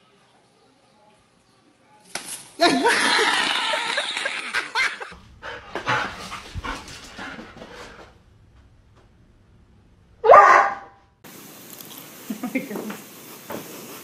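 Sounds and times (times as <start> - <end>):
dog yipping and barking: 10.2 - 10.9.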